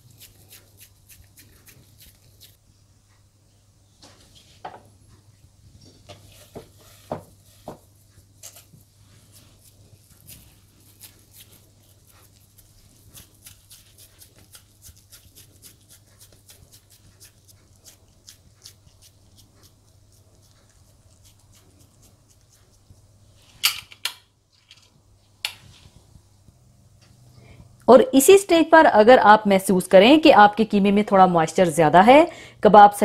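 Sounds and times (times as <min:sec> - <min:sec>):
hands squeezing minced meat: 0:00.0 - 0:02.6, 0:06.3 - 0:23.1
faint low hum: 0:00.0 - 0:33.0.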